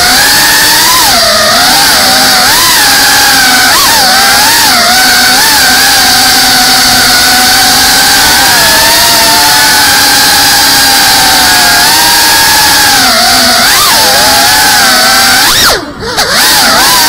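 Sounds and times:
drone propellers whining: 0:00.0 - 0:17.0.

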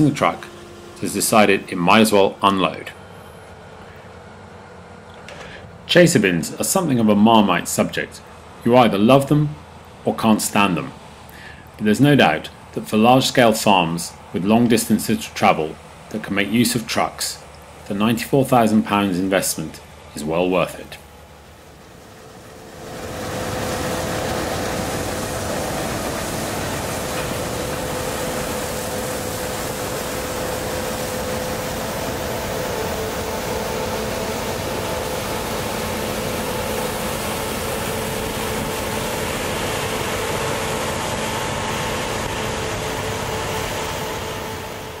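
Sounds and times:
harvesting machinery drone: 0:00.0 - 0:45.0.

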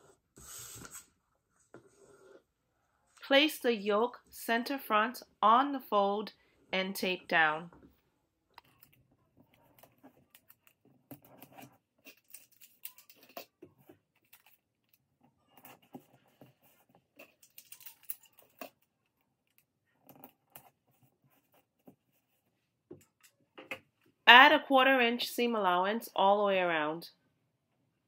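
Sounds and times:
paper and tape rustling: 0:08.7 - 0:22.5.

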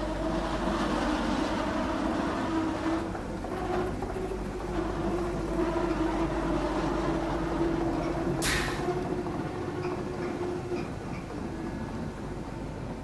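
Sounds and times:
mill machinery humming: 0:00.0 - 0:13.0
short sharp hiss: 0:08.4 - 0:08.8.

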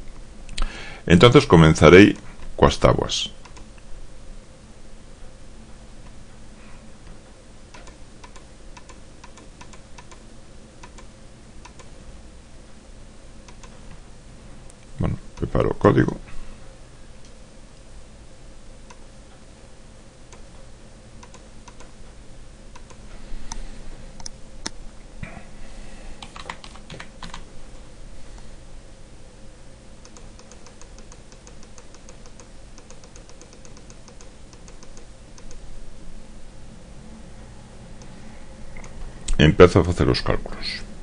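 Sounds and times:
faint steady hum: 0:00.0 - 0:41.0
mouse clicks: 0:03.4 - 0:03.8, 0:07.7 - 0:10.2, 0:10.8 - 0:11.9, 0:13.5 - 0:13.8, 0:21.2 - 0:21.9, 0:22.7 - 0:23.6, 0:30.0 - 0:35.6
typing on keyboard: 0:26.2 - 0:27.4, 0:30.1 - 0:35.6.

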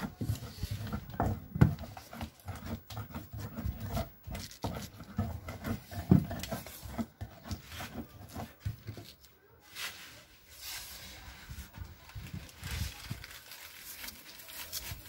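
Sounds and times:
pestle pounding in wooden mortar: 0:00.0 - 0:08.8
knife cutting fruit on table: 0:00.0 - 0:09.2.

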